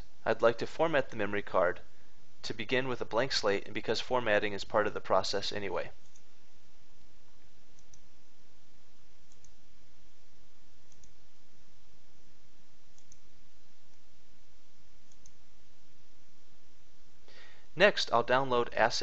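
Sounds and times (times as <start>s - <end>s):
steady background hiss: 0.0s - 19.0s
computer mouse clicking: 7.7s - 8.1s, 9.3s - 9.6s, 10.8s - 11.2s, 12.9s - 13.3s, 15.0s - 15.4s.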